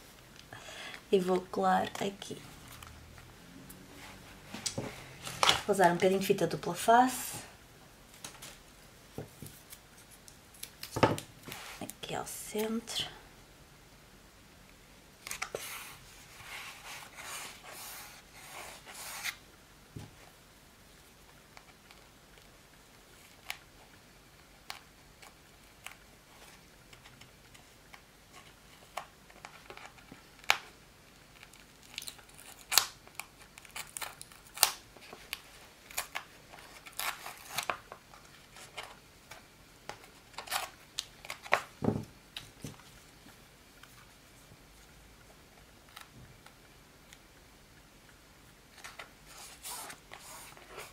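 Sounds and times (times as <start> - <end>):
tape rustling on cardboard: 8.1 - 12.8, 15.2 - 19.4, 23.1 - 44.9, 48.7 - 50.9.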